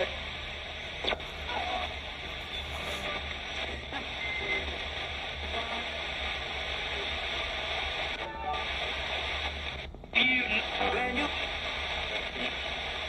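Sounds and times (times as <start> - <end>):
radio broadcast fragments: 0.0 - 13.0
radio static hiss: 0.0 - 13.0.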